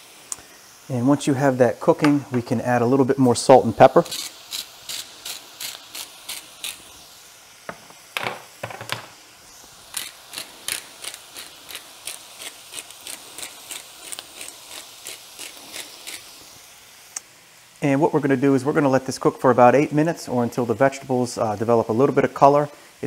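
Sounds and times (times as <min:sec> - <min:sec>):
spice grinder ratcheting: 0:04.0 - 0:06.9, 0:09.9 - 0:16.4.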